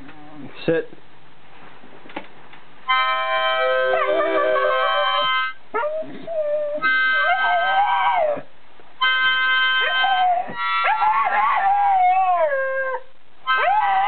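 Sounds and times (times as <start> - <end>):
harmonica playing chords: 2.9 - 5.6, 6.8 - 7.4, 9.0 - 10.8
dog howling: 3.7 - 8.5, 9.2 - 14.0
dog yelping: 6.7 - 8.4, 9.2 - 14.0.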